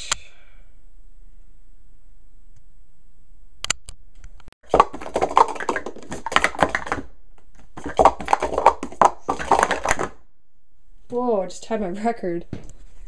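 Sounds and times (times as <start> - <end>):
plastic cups clattering: 4.6 - 10.2.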